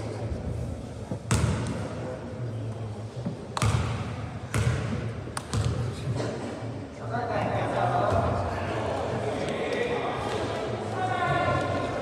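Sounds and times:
basketball bouncing on court floor: 0:01.3 - 0:01.8, 0:03.6 - 0:05.8.

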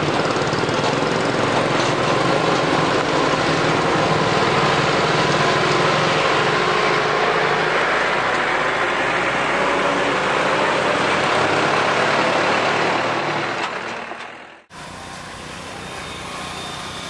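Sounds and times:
diesel truck engine driving past: 0:01.0 - 0:17.0
small motorcycle engine buzz: 0:14.7 - 0:17.0.

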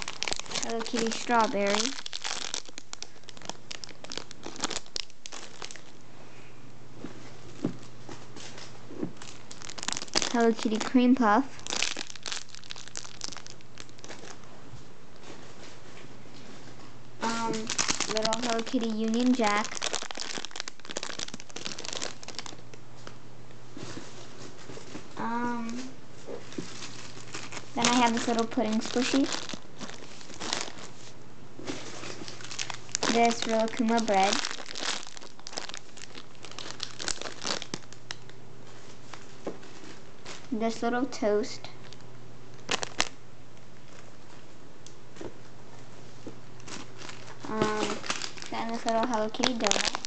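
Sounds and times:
plastic packaging crinkling: 0:00.0 - 0:06.0, 0:07.8 - 0:14.6, 0:17.2 - 0:23.2, 0:26.4 - 0:40.6, 0:41.8 - 0:44.3, 0:46.6 - 0:50.0.

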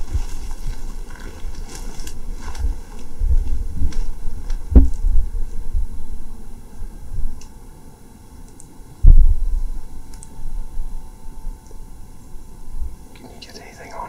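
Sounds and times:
muffled low thumps: 0:02.6 - 0:06.4, 0:09.0 - 0:09.8.

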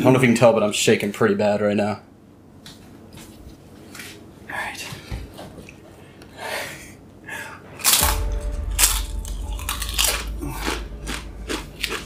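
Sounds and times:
crisp chip crunching: 0:07.8 - 0:08.2, 0:08.8 - 0:12.0.

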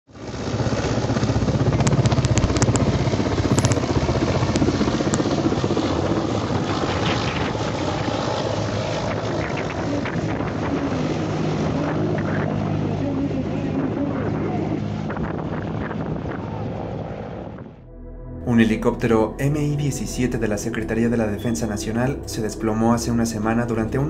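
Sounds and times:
helicopter rotor beating: 0:00.1 - 0:17.9
wind buffeting microphone: 0:00.5 - 0:17.8.

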